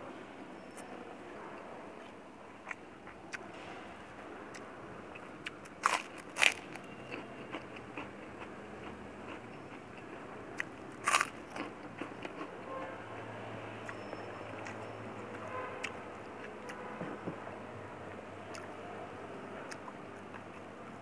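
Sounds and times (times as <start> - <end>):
chewing crackles: 4.5 - 12.7, 13.8 - 16.8, 18.5 - 18.8, 19.6 - 21.0
crunching bites into cracker: 5.6 - 6.9, 11.0 - 11.7.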